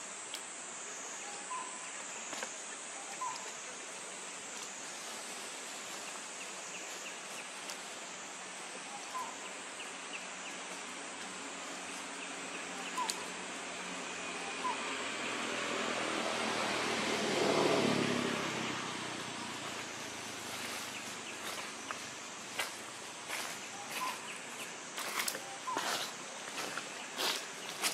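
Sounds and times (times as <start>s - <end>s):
high-pitched insect drone: 8.0s - 27.9s
short insect chirps: 19.4s - 27.9s.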